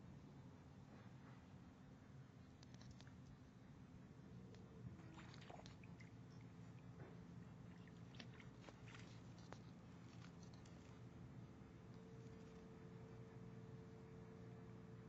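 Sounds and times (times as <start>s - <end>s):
faint background hum: 0.0s - 15.0s.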